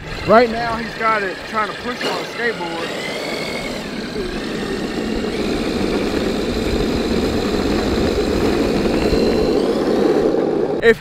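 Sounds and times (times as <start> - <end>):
wheels rolling on asphalt: 0.0 - 10.8.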